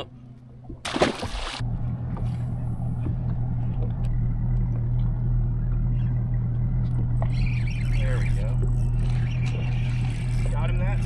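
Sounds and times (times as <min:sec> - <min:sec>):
fish splashing into water: 0:00.8 - 0:01.6
outboard motor idling: 0:01.6 - 0:11.0.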